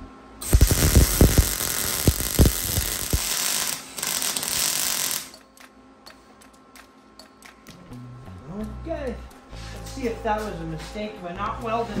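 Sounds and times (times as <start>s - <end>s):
welder arc crackling: 0.4s - 5.4s.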